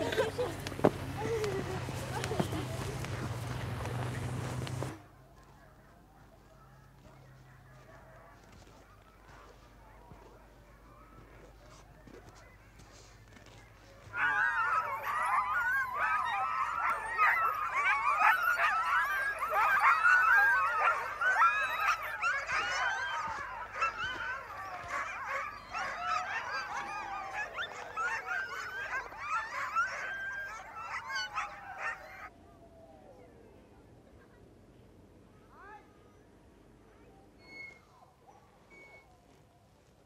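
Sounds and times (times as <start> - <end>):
sled dogs howling and yelping: 7.0 - 33.4.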